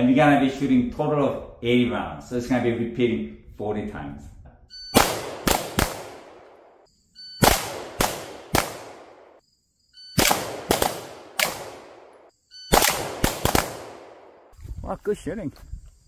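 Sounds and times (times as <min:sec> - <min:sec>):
handgun shots echoing: 0:05.0 - 0:06.7, 0:07.4 - 0:09.4, 0:10.2 - 0:14.4.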